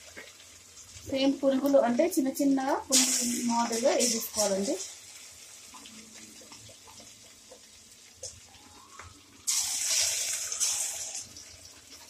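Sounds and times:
batter deep-frying in oil: 0.0s - 12.0s
burst of sizzling: 2.9s - 6.6s, 8.5s - 11.8s.

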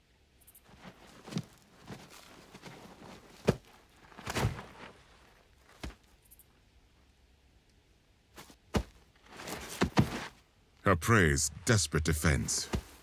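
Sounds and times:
thuds and scuffling in sand: 0.6s - 6.1s, 8.3s - 10.4s, 12.6s - 13.0s.

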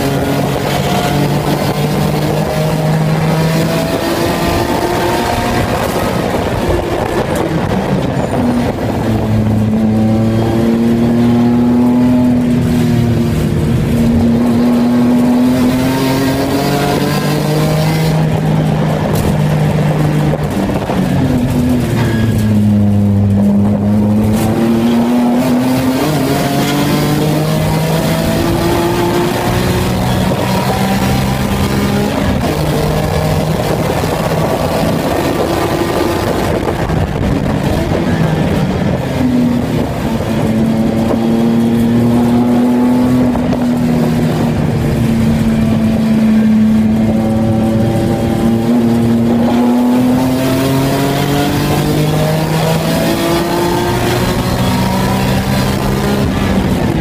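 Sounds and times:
race car engine accelerating: 0.0s - 57.0s.

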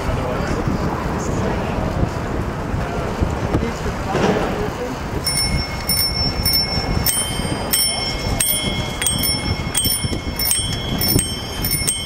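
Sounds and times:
bicycle bells ringing: 5.2s - 12.0s.

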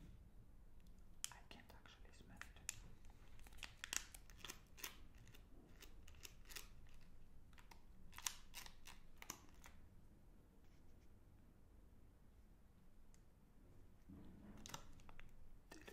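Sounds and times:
wrapper crinkling: 3.3s - 5.4s.

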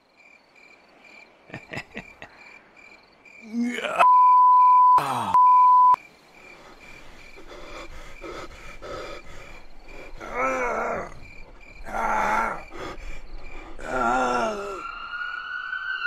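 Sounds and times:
crickets chirping: 0.0s - 16.0s
man groaning: 3.4s - 4.1s, 5.0s - 5.4s, 10.2s - 13.2s, 13.8s - 14.8s
censor bleep: 4.0s - 6.0s.

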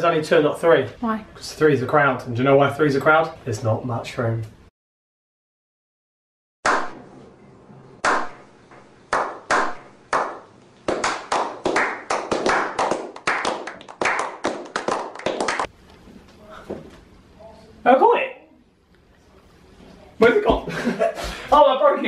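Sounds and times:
people clapping slowly: 9.1s - 15.7s.

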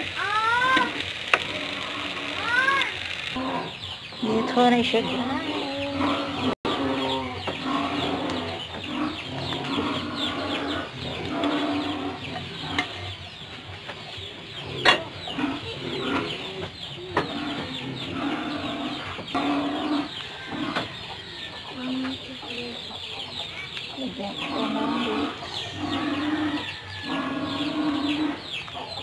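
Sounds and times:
sharp clicks: 0.0s - 3.4s.

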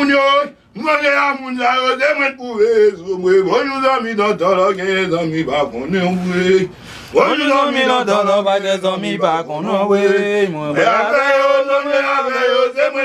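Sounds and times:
man chanting: 0.0s - 13.0s.

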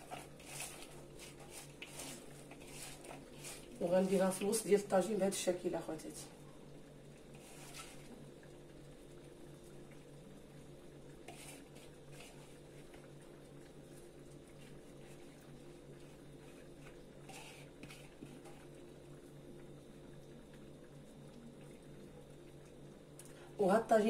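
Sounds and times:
food scraped from a bowl: 0.0s - 3.8s, 7.3s - 8.1s, 11.2s - 13.0s, 16.4s - 18.7s
tagine simmering: 0.0s - 24.0s.

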